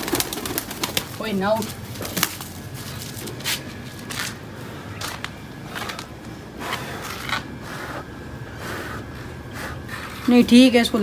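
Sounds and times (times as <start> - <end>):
feathers and wings rustling: 0.0 - 4.4
scuffing on concrete floor: 2.0 - 4.4, 5.0 - 6.1.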